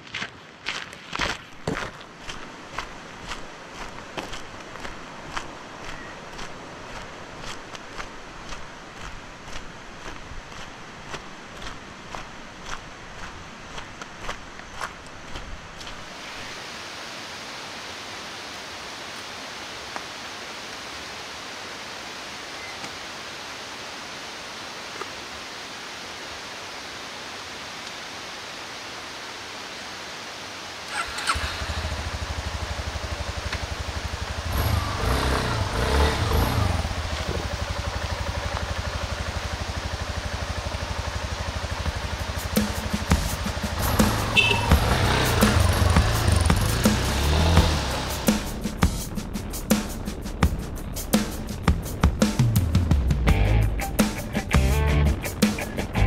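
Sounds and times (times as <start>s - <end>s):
steady rushing hiss: 2.1s - 56.0s
motorcycle engine idling and revving: 30.9s - 54.0s.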